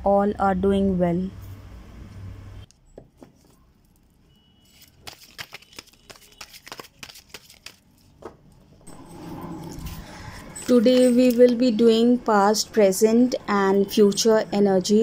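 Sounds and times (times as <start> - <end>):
cards being shuffled: 4.7 - 7.9.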